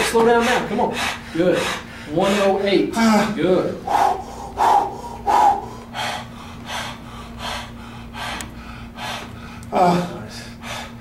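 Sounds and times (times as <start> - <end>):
man breathing hard: 0.0 - 11.0
steady low hum: 0.0 - 11.0.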